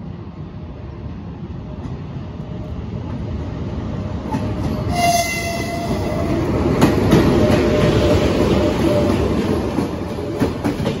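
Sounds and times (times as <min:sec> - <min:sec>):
train rumble: 0:00.0 - 0:11.0
train horn toot: 0:04.9 - 0:06.4.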